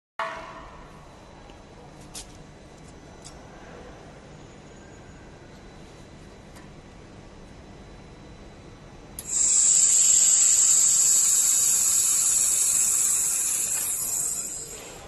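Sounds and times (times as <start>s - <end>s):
laser welding hiss and whine: 9.2s - 15.0s.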